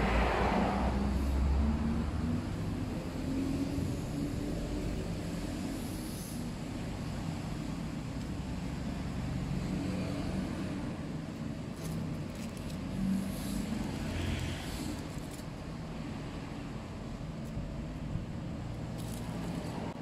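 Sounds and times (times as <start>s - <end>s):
aluminium foil crinkling: 11.8s - 12.9s, 19.0s - 19.8s.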